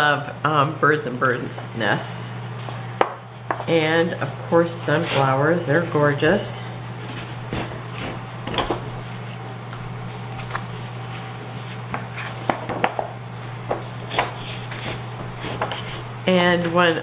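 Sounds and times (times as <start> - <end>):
paper pages turning and rustling: 9.2 - 12.5.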